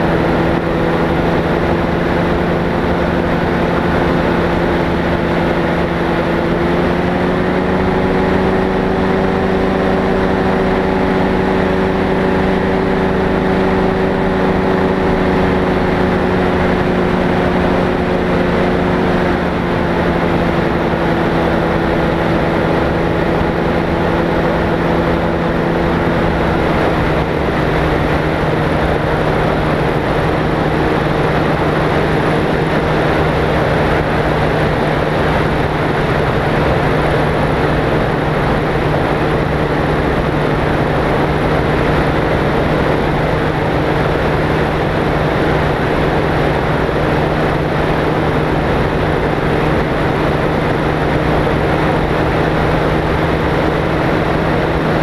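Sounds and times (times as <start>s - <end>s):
light aircraft engine droning: 0.0s - 55.0s.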